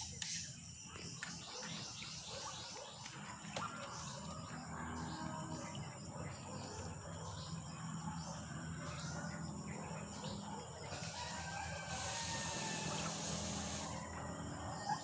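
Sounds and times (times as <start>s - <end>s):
rooster crowing: 10.9s - 15.0s
high insect chirring: 11.0s - 14.1s.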